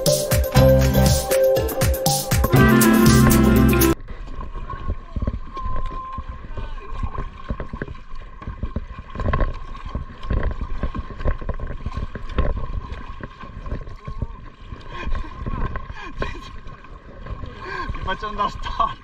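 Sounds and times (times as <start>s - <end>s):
paddles splashing in water: 0.0s - 19.0s.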